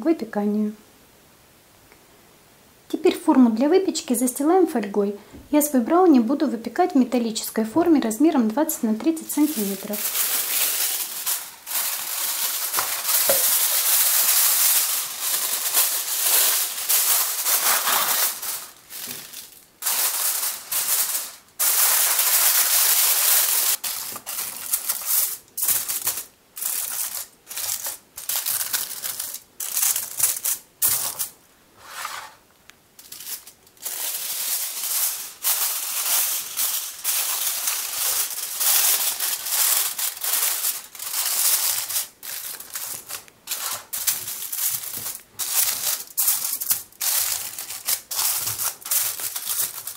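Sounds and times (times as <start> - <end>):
aluminium foil crinkling: 8.7 - 31.4, 33.0 - 49.9.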